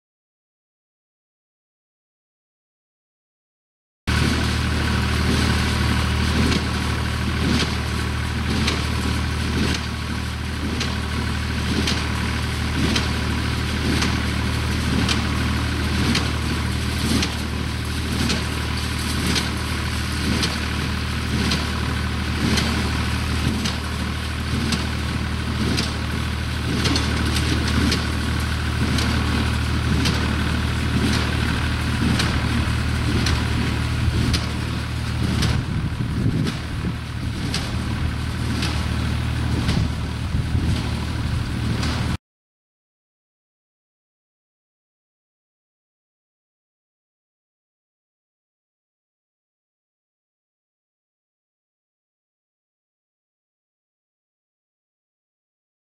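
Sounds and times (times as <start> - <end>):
tractor engine running: 4.1 - 42.2.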